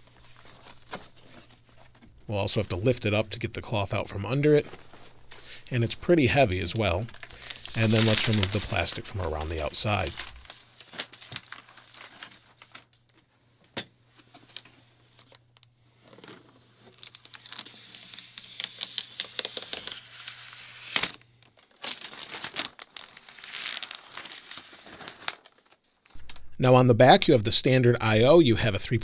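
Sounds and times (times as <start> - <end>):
plastic film peeling and crinkling: 4.4 - 13.3, 14.2 - 26.5.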